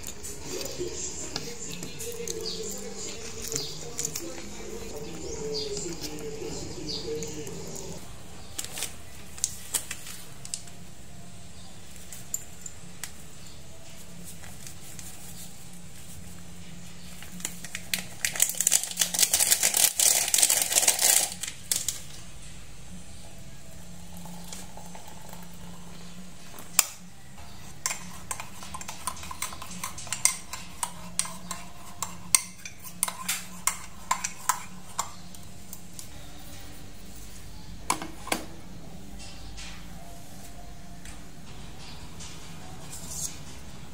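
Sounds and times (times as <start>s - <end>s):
mug and utensils clinking: 27.7s - 35.4s.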